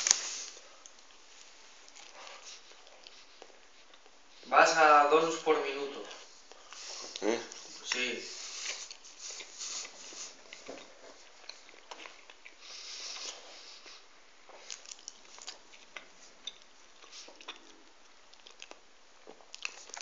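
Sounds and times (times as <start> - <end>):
person chewing: 0.0 - 4.2, 6.4 - 20.0
breathy nasal hiss: 6.6 - 10.4, 12.6 - 14.1.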